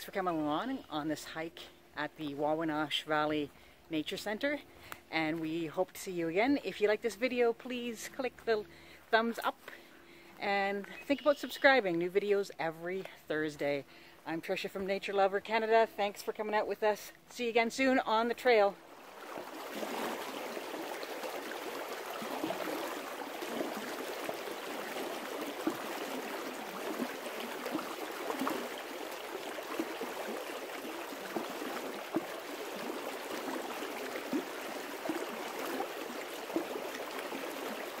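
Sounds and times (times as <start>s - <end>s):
stream running over stones: 17.4s - 38.0s.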